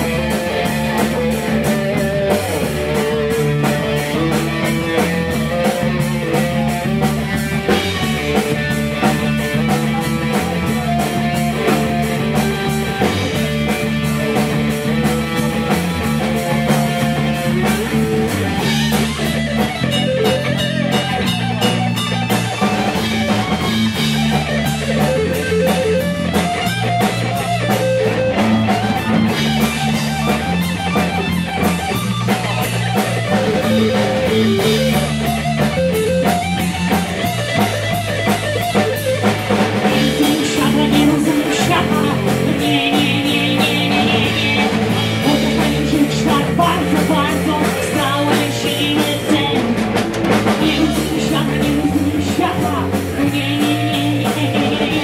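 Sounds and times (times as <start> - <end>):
bass guitar: 0.0 - 55.0
electric guitar: 0.0 - 55.0
steady drumbeat: 0.0 - 55.0.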